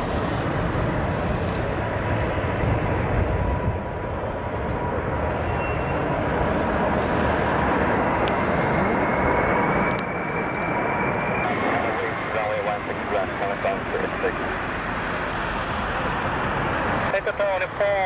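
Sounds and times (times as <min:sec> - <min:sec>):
wind buffeting: 0:00.0 - 0:11.4
jet engines rumbling with whine: 0:00.0 - 0:18.0.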